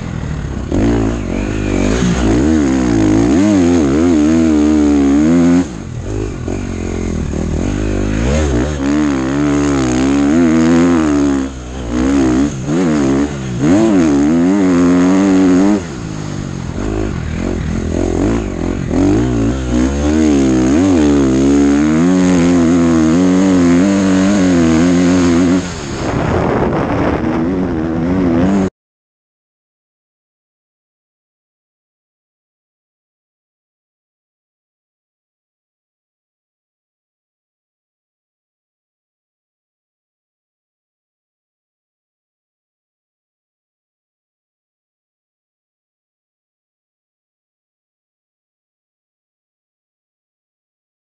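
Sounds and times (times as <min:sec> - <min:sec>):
motorcycle engine revving: 0:00.0 - 0:28.7.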